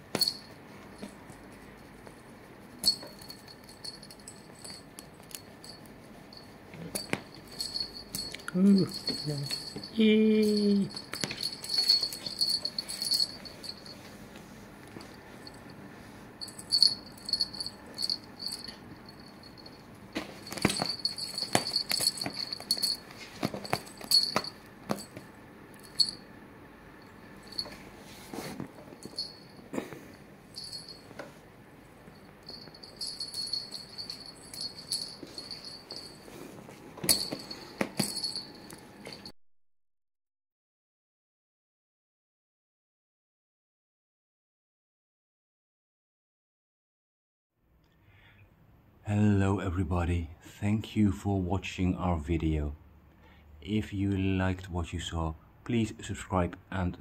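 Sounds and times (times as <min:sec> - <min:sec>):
small bell jingling: 0:00.1 - 0:01.6, 0:02.7 - 0:14.1, 0:15.1 - 0:15.7, 0:16.4 - 0:26.3, 0:27.0 - 0:27.8, 0:28.9 - 0:31.2, 0:32.0 - 0:39.3.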